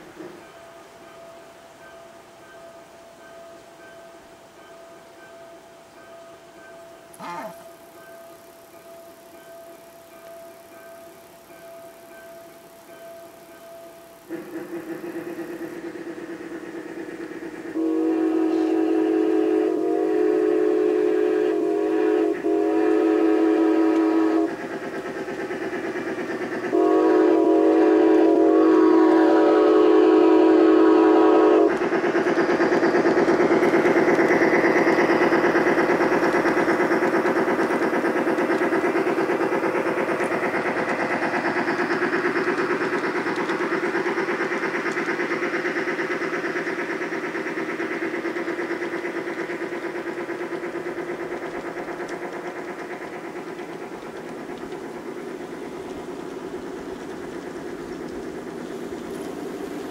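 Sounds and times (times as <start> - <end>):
model train running sound: 0.0 - 59.9
model train whistle blasts: 7.1 - 16.2, 17.8 - 24.5, 26.7 - 31.8.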